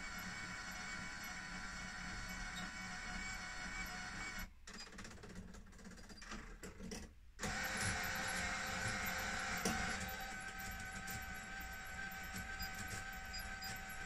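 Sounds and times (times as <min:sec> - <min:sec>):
bus destination blind whirring: 0:07.4 - 0:14.0.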